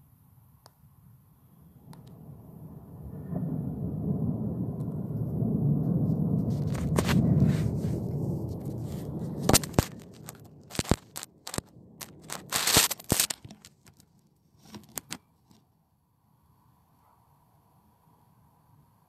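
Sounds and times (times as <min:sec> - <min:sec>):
low rumble of thunder: 0:01.6 - 0:12.5
sharp clicks and crackles: 0:01.9 - 0:02.2, 0:06.1 - 0:15.6
faint hiss: 0:04.4 - 0:15.1.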